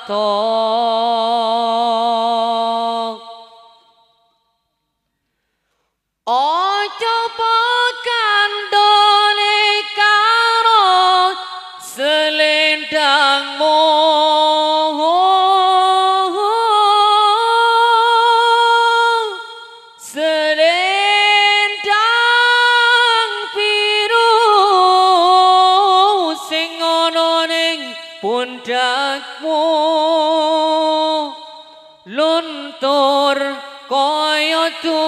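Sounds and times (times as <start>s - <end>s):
singer breathing: 5.0s - 6.0s
man singing unaccompanied: 20.0s - 35.0s.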